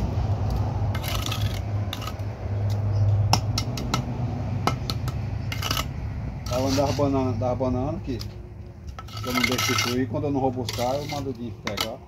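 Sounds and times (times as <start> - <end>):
trowel scraping mortar: 0.9 - 2.3, 5.5 - 7.2, 8.9 - 12.0.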